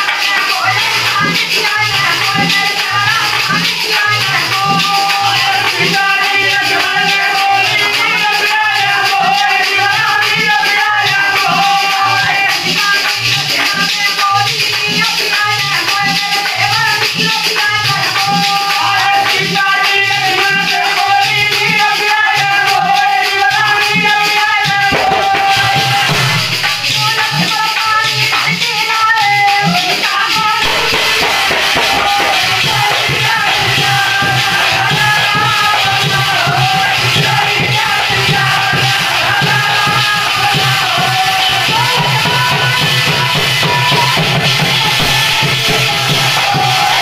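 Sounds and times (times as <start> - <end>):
person singing: 0.0 - 47.0
brass plate beaten on clay pot: 20.3 - 28.4, 29.3 - 47.0
drum beating low thumps: 30.6 - 34.4.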